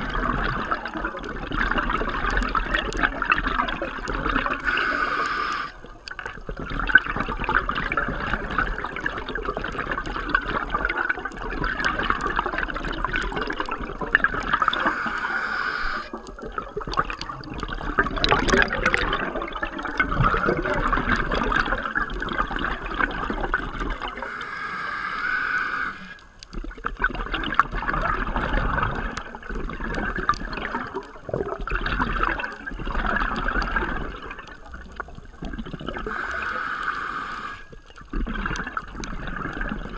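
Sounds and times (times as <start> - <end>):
underwater rushing and bubbling: 0.0 - 39.9.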